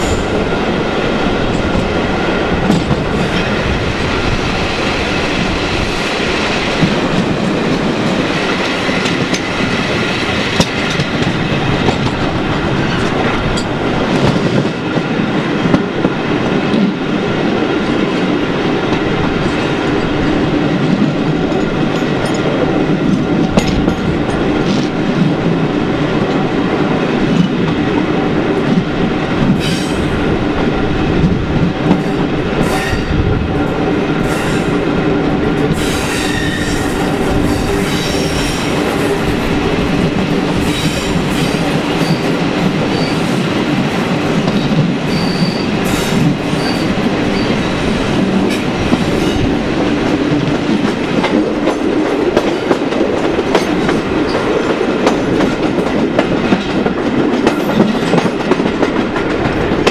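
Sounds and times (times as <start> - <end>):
train wheel and engine rumble: 0.0 - 59.9
high wheel squeals: 45.1 - 45.7.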